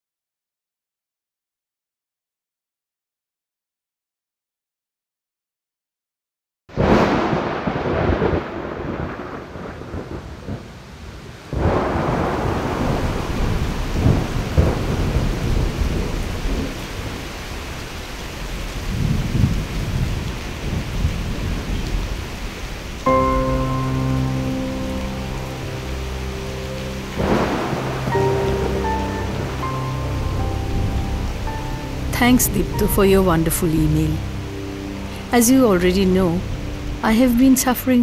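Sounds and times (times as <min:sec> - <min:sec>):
rolling thunder: 0:06.7 - 0:32.9
rain falling: 0:06.7 - 0:38.0
sustained musical chord: 0:23.1 - 0:38.0.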